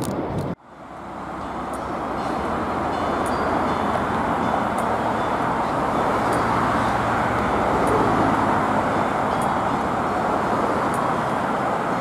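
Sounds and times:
passing cars: 0.0 - 12.0
tram approaching: 0.0 - 12.0.

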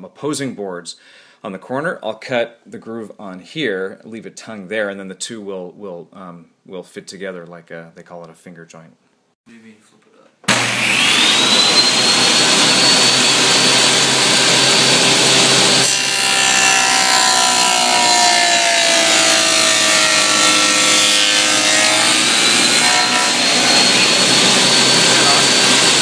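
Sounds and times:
saw blade cutting boards: 10.5 - 26.0
table saw whine: 10.5 - 26.0.

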